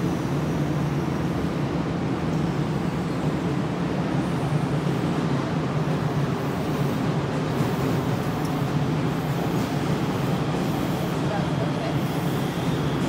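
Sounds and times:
electric train humming: 0.0 - 13.0.

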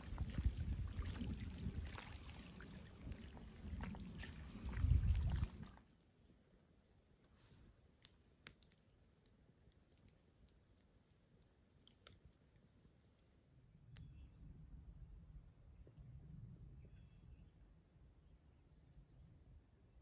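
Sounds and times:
wind buffeting microphone: 0.0 - 5.8
lapping lake water: 0.0 - 14.0
campfire embers crackling: 7.9 - 14.0.

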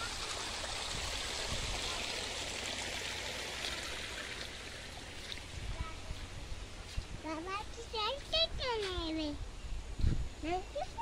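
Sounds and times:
stream flowing: 0.0 - 8.3.

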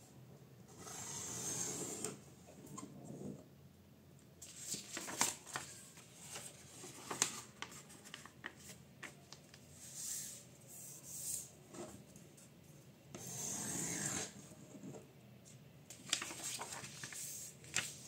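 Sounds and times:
paper crackling and rustling: 4.4 - 9.7, 15.9 - 18.0.

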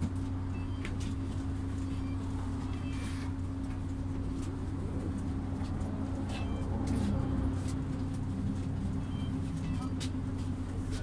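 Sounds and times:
bus engine humming: 0.0 - 11.0.

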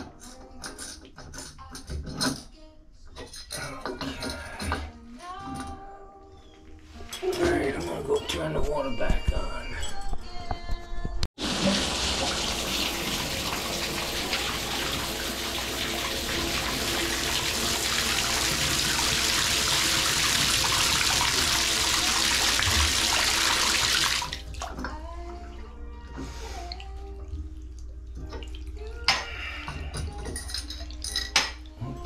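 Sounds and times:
water rushing into a bathtub: 11.4 - 24.7
water trickling: 11.4 - 24.9.

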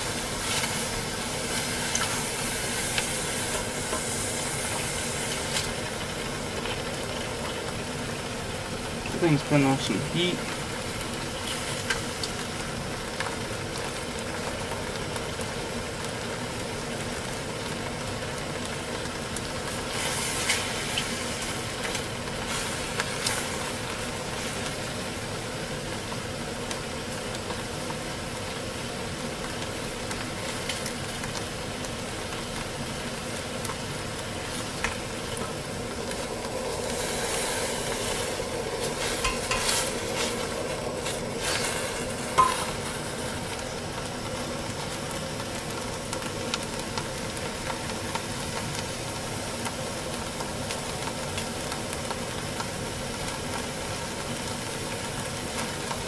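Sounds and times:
camp stove hiss: 0.0 - 56.0
food sizzling in a pot: 0.0 - 56.0
utensil scraping and clinking on pot: 38.0 - 42.9.

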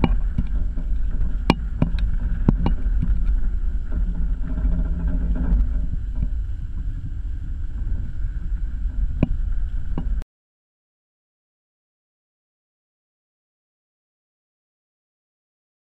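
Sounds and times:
wind buffeting camera: 0.0 - 10.2.

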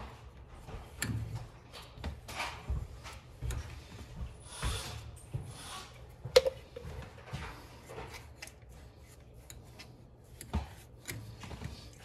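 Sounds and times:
brush rubbing liquid on fittings: 7.5 - 12.0.

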